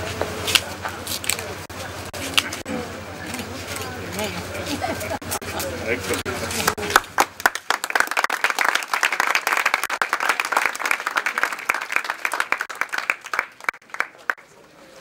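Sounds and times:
crowd applauding: 6.1s - 14.5s.

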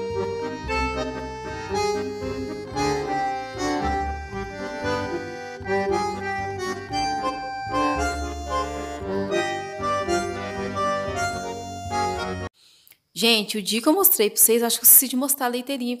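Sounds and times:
bass line: 0.0s - 12.5s
accordion melody: 0.0s - 12.6s.

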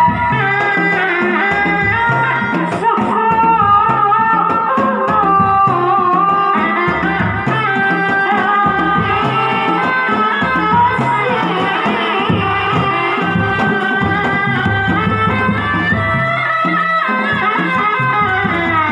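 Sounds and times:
drums beaten with sticks: 0.0s - 18.9s
wavering melody line: 8.7s - 17.4s.

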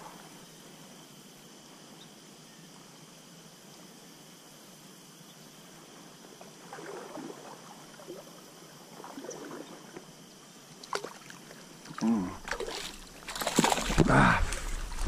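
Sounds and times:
faint hiss: 0.0s - 13.1s
stream water gurgling: 5.7s - 15.0s.

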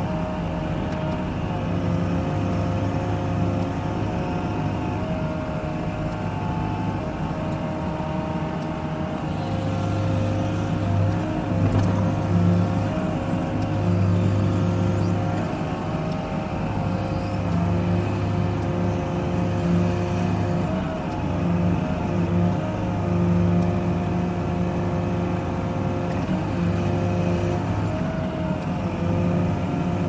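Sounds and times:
diesel engine under load: 0.0s - 30.0s.

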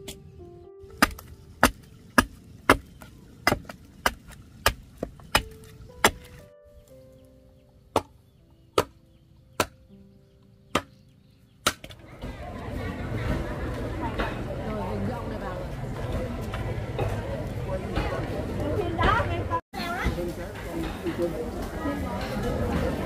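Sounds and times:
soft instrumental music: 0.0s - 3.1s, 5.0s - 18.4s
chopping strikes on bamboo: 1.0s - 6.4s, 7.9s - 8.2s, 8.8s - 9.8s, 10.7s - 11.0s, 11.6s - 12.0s.

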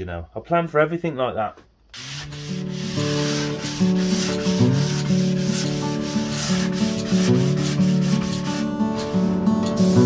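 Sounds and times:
sanding block rubbing wood: 2.0s - 9.2s, 9.8s - 10.0s
background music: 2.2s - 10.0s.

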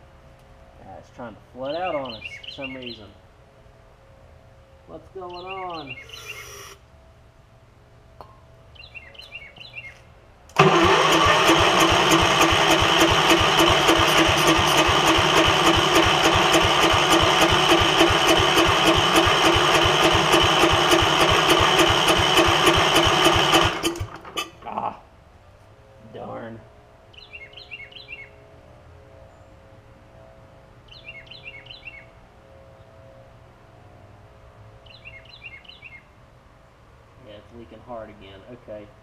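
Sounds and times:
engine cranking on electric starter: 10.5s - 24.6s.

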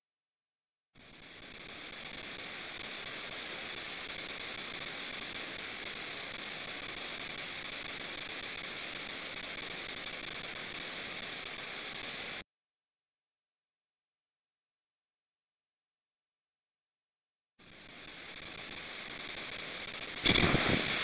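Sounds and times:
electronic static hiss: 1.0s - 12.4s, 17.6s - 21.0s.

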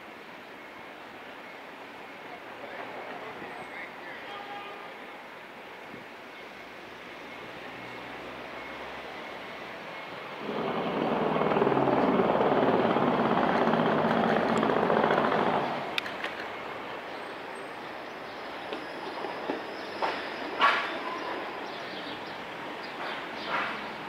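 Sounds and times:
street traffic: 0.0s - 24.0s
large vehicle engine hum: 6.7s - 18.8s.

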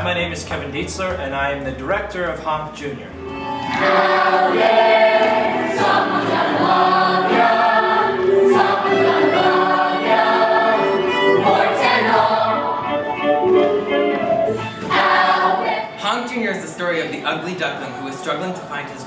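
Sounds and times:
young performers singing in chorus: 3.6s - 13.0s, 14.8s - 16.0s.

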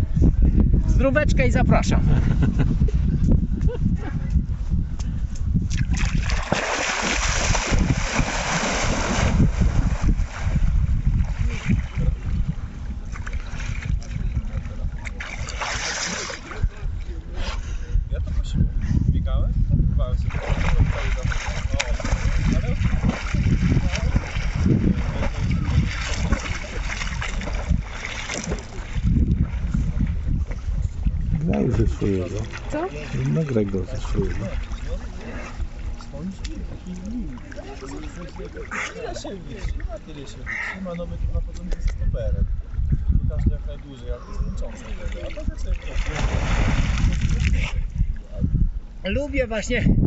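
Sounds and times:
wind rumble on microphone: 0.0s - 40.2s, 40.8s - 50.0s
water splashing from swimming: 5.7s - 16.8s, 20.2s - 41.1s, 44.6s - 47.9s.

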